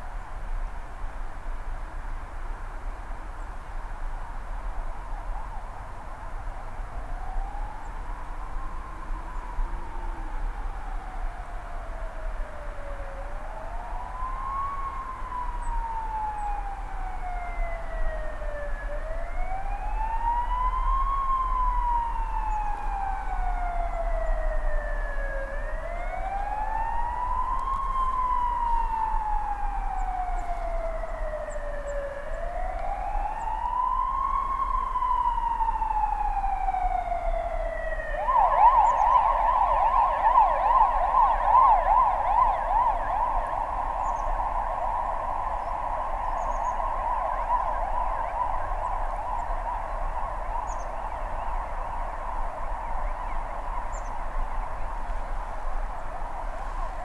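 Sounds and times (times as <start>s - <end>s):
siren wailing: 7.0s - 55.1s
siren fast yelp: 12.9s - 54.8s.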